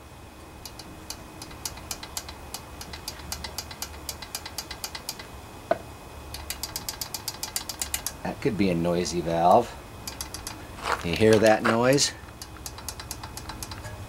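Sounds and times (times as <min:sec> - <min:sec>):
rapid metallic clicking of engine valves: 0:00.6 - 0:05.3, 0:06.3 - 0:08.3, 0:10.0 - 0:10.6, 0:12.2 - 0:13.9.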